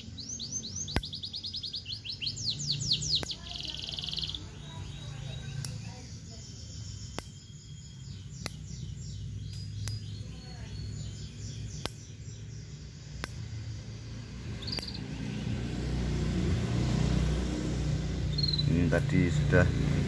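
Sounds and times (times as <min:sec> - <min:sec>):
songbirds chirping: 0:00.0 - 0:20.0
sharp ticks: 0:00.8 - 0:01.5, 0:02.7 - 0:04.4, 0:05.6 - 0:05.9, 0:08.4 - 0:08.8, 0:09.5 - 0:10.2, 0:11.8 - 0:12.2, 0:13.2 - 0:13.7, 0:14.4 - 0:15.4
motorbike engine approaching: 0:08.0 - 0:20.0.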